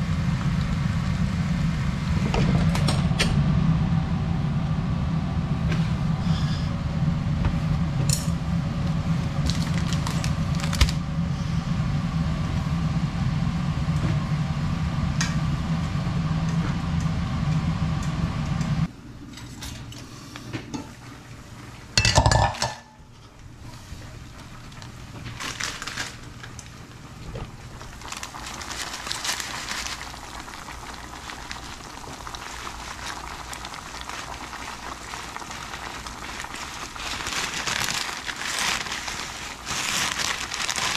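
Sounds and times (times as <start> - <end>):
steady hum: 0.0 - 40.9
plastic packet crinkling: 9.4 - 11.0, 24.8 - 26.8, 27.8 - 40.9
pot lid clanking: 22.0 - 22.9.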